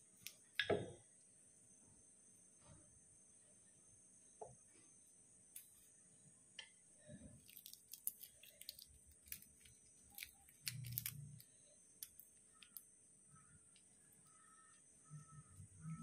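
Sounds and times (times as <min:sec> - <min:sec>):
garlic skin crackling: 0:07.4 - 0:11.4.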